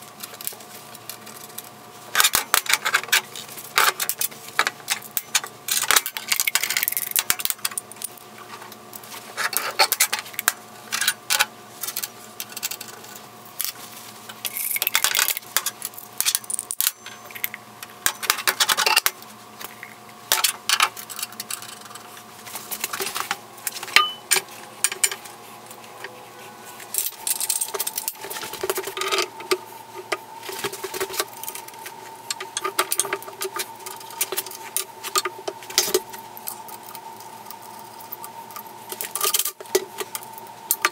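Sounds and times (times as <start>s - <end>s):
steel parts clinking: 26.9s - 29.4s.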